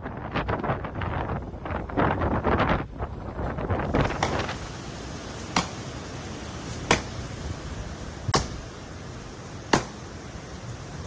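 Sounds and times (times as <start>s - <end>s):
blade chopping branches: 4.0s - 4.6s, 5.3s - 6.0s, 6.6s - 7.3s, 8.3s - 8.8s, 9.7s - 10.1s.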